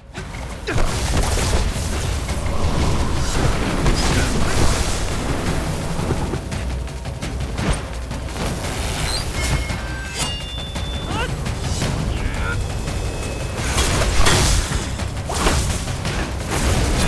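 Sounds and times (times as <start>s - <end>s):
film soundtrack music: 0.0s - 17.0s
low rumble: 1.2s - 8.8s.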